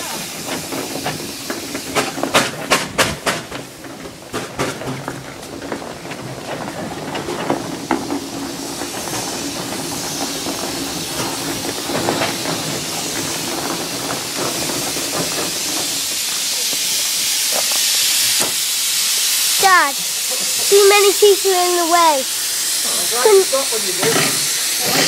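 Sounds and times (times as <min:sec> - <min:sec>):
steam engine hissing: 0:00.0 - 0:25.0.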